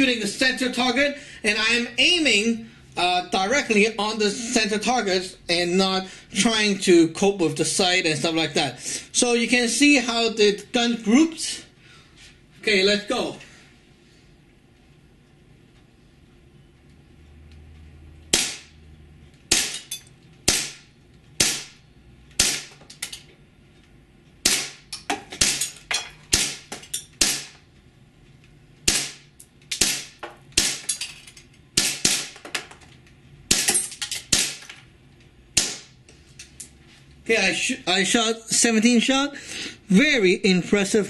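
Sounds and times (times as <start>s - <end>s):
airsoft pistol shots: 18.3s - 18.8s, 19.5s - 19.8s, 20.5s - 21.8s, 22.4s - 22.7s, 24.4s - 24.8s, 26.3s - 27.6s, 28.9s - 30.8s, 31.8s - 32.4s, 33.5s - 34.6s.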